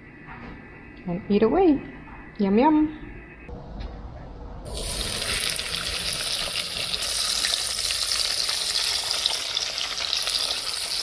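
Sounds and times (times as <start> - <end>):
fish sizzling in hot oil: 4.7 - 11.0.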